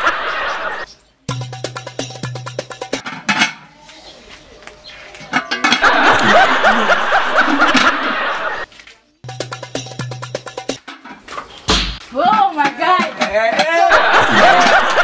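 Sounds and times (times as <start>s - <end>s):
music: 1.3s - 3.0s, 9.2s - 10.8s
person laughing: 5.8s - 8.6s, 13.8s - 15.0s.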